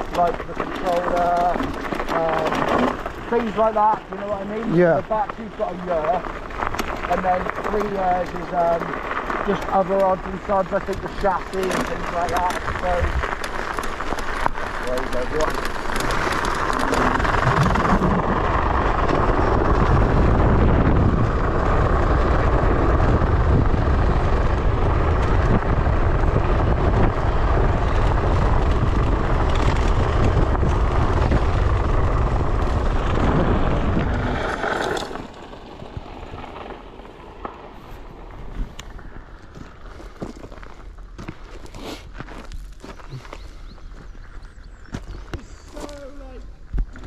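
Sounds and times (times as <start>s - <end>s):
wind buffeting microphone: 0.0s - 36.9s.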